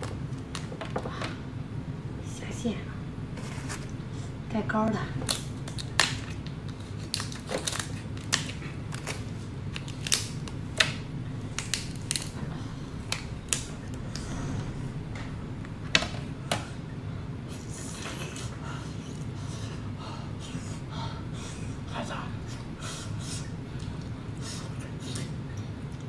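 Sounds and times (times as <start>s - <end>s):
lobster shell cracking: 5.2s - 12.4s.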